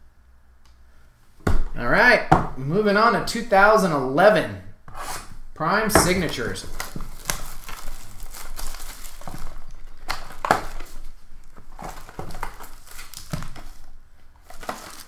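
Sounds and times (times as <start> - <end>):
cardboard packaging rustling: 5.0 - 15.0
plastic wrapping crinkling and tearing: 6.1 - 15.0.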